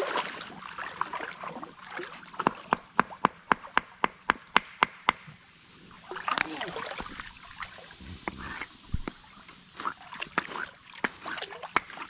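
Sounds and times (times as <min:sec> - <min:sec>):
rock striking rock: 0:08.0 - 0:09.2.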